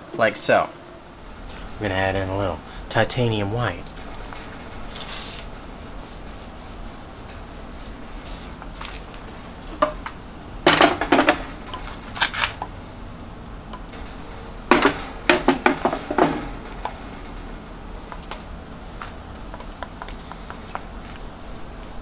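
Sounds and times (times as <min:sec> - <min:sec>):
steady high-pitched hum: 0:00.0 - 0:22.0
paint roller clattering on tray: 0:01.3 - 0:09.0.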